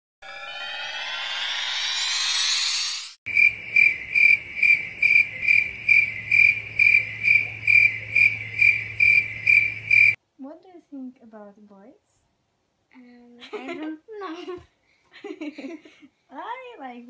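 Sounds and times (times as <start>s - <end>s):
tone rising in pitch: 0.2s - 3.2s
cricket chirping: 3.3s - 10.2s.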